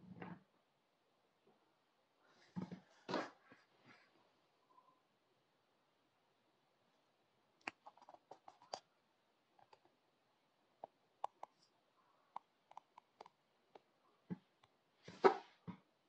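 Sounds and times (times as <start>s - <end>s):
faint small clicks and taps: 12.3s - 14.8s.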